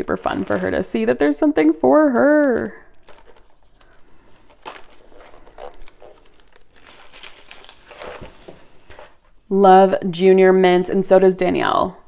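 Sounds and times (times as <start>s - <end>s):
wrapping paper crinkling and tearing: 2.4s - 9.4s.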